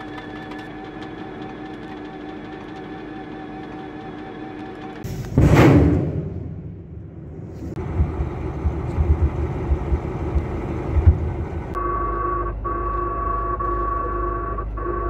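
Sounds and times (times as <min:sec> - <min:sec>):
missile launch rumbling roar: 0:05.1 - 0:09.7
electrical hum: 0:06.5 - 0:15.0
high steady whine: 0:06.7 - 0:11.8.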